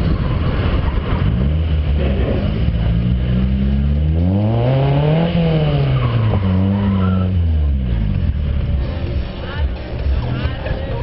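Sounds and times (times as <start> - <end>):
tire squeal: 0.0 - 2.6, 4.2 - 8.0
car engine revving: 0.0 - 11.0.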